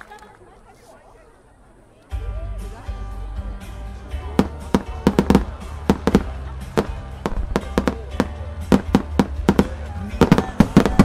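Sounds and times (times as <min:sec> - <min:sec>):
music over loudspeakers: 0:02.2 - 0:11.0
fireworks bursting: 0:04.4 - 0:11.0.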